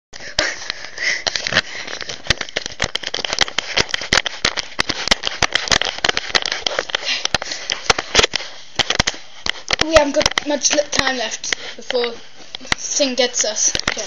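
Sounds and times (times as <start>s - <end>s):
dense irregular crackling: 0.2s - 14.0s
steady microphone hiss: 6.3s - 14.0s.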